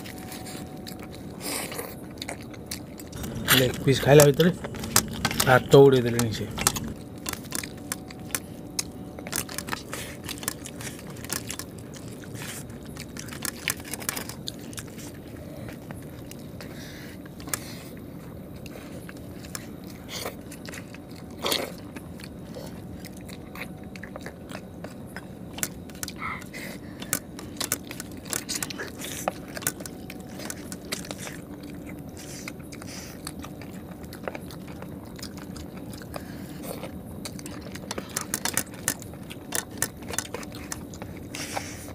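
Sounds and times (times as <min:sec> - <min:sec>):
low background hum: 0:00.0 - 0:41.9
people chewing and crunching: 0:00.0 - 0:41.9.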